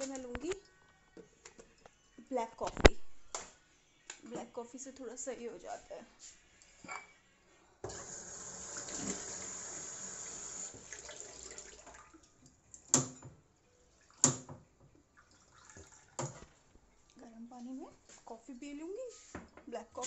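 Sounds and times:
tap water running into a glass: 7.8 - 12.3, 15.2 - 16.4.

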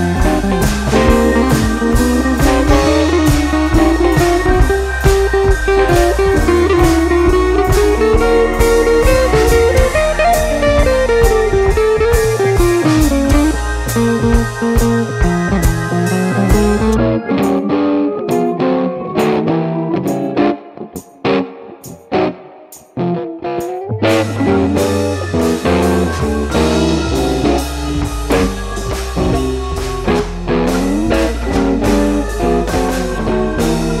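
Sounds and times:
steady drum beat: 0.0 - 17.0, 24.0 - 34.0
bass: 0.0 - 18.1, 23.9 - 34.0
bluesy electric guitar melody: 0.0 - 34.0.

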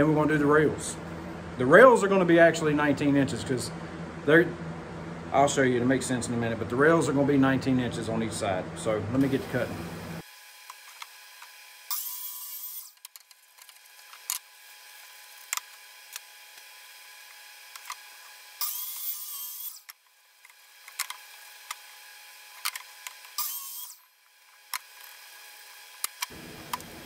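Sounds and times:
miter saw cutting wood: 10.5 - 13.0, 13.9 - 27.0.

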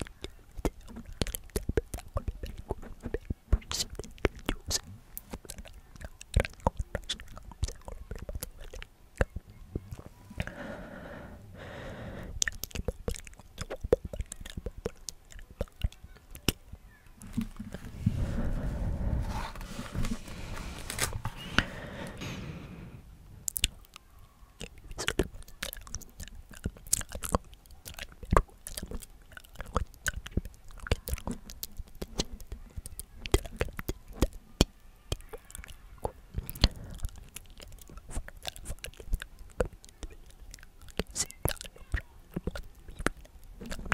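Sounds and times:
magazine pages rustling: 19.3 - 21.4.

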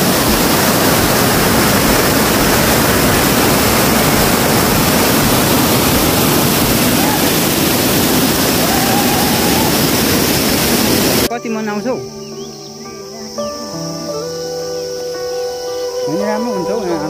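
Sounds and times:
stream cascading over boulders: 0.0 - 11.3.

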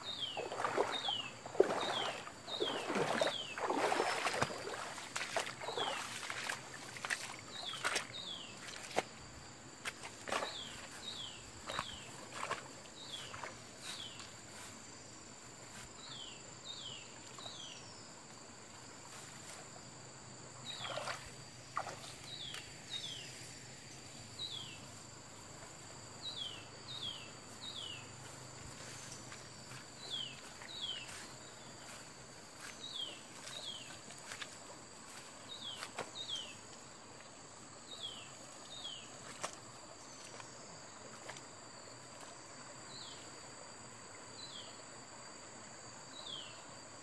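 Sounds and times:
insects buzzing: 0.0 - 47.0
footsteps through grass: 0.4 - 9.2, 9.8 - 14.9, 20.7 - 36.5.

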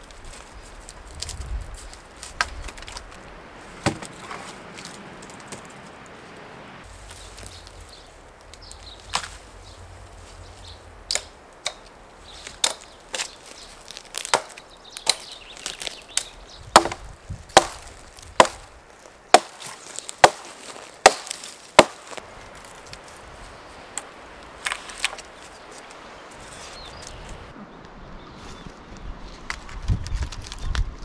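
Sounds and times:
hatchet chopping branch: 3.8 - 5.7, 8.5 - 9.4, 11.1 - 18.7, 19.3 - 22.2.

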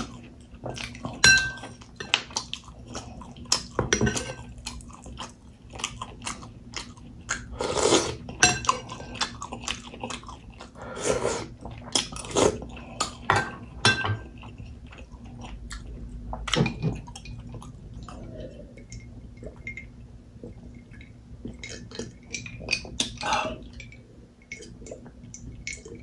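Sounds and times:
chewing with mouth clicks: 0.0 - 10.8, 11.4 - 13.3, 14.2 - 26.0
spoon and glass clinking: 1.2 - 2.2, 19.6 - 19.9.

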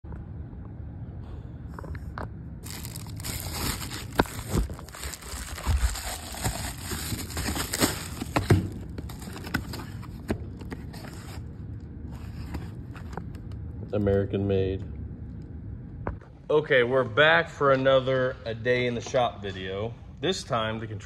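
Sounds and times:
plastic mailer tearing and crinkling: 2.6 - 11.4.

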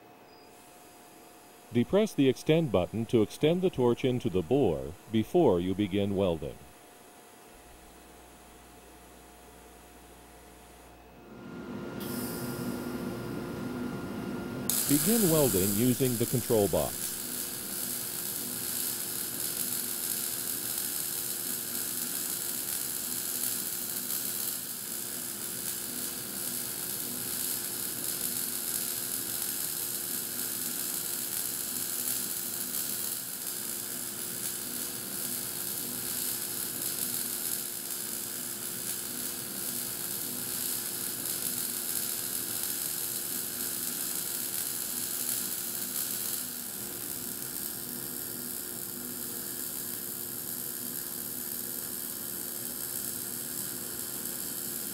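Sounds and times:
welding arc crackling: 14.7 - 54.9.

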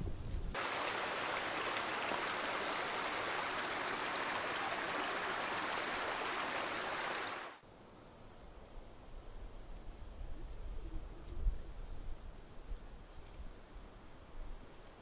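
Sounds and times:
running water: 0.6 - 7.6.

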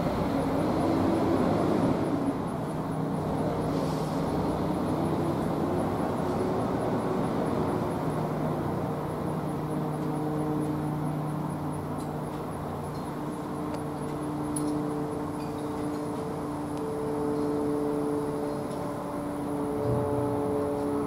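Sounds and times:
siren rotor humming and whirring: 4.8 - 21.0.

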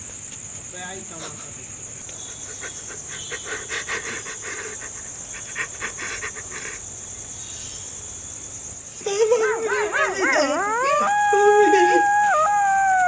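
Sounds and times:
crickets chirring: 0.0 - 13.0.

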